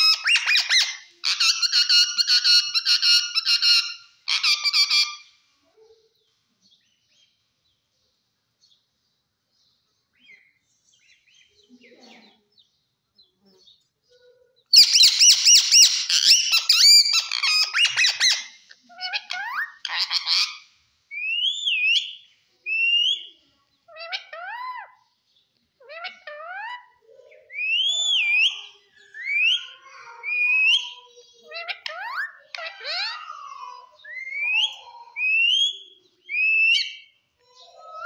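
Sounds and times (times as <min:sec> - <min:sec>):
parakeet warbling calls: 0:00.0 - 0:05.3, 0:14.7 - 0:22.1
parakeet chatters and whistles: 0:00.0 - 0:05.4, 0:13.5 - 0:25.2, 0:25.8 - 0:38.0.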